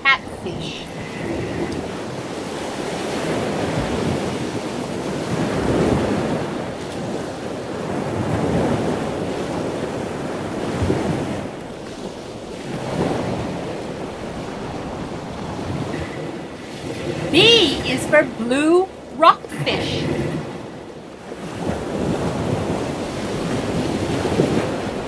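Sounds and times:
ocean surf: 0:00.0 - 0:25.0.

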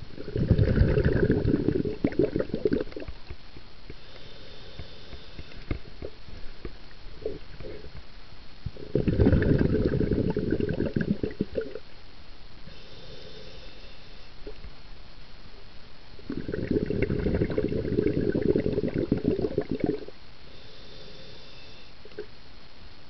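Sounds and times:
underwater exhalation bubbles: 0:00.2 - 0:03.2, 0:08.8 - 0:11.8, 0:16.2 - 0:20.2
breath in through regulator: 0:03.9 - 0:05.9, 0:12.7 - 0:14.3, 0:16.3 - 0:22.2.

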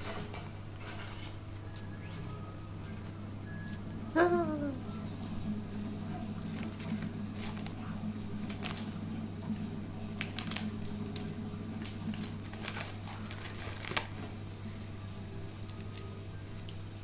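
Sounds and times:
steady low hum: 0:00.0 - 0:17.0
plastic wrapper crinkling: 0:06.4 - 0:14.4.

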